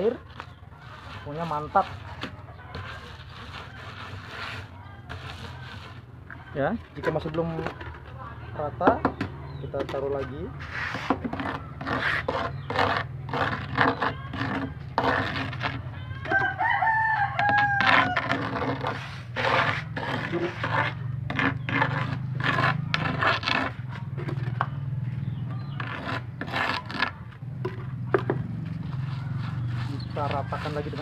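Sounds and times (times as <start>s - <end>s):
paint roller rasping: 0.4s - 6.1s, 10.6s - 15.9s, 17.4s - 24.6s, 25.6s - 27.2s, 28.2s - 31.0s
rooster crowing: 15.9s - 19.0s.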